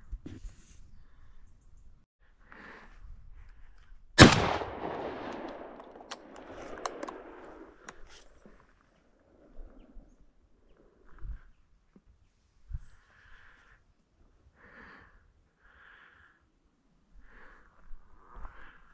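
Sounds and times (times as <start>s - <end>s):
shotgun shot: 4.2s - 7.8s
faint clicks: 5.1s - 8.6s.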